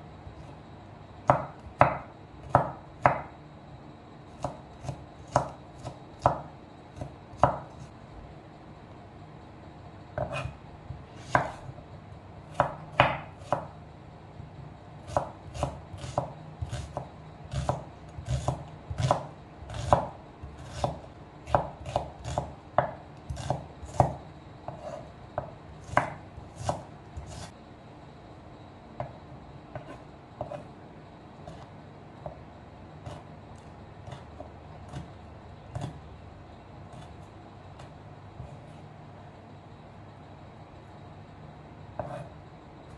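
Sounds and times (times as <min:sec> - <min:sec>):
knife chopping on wooden board: 0:04.4 - 0:07.8, 0:10.2 - 0:10.6, 0:11.2 - 0:11.6, 0:12.5 - 0:13.7, 0:15.1 - 0:27.5, 0:29.7 - 0:30.6, 0:35.7 - 0:36.0, 0:42.0 - 0:42.3.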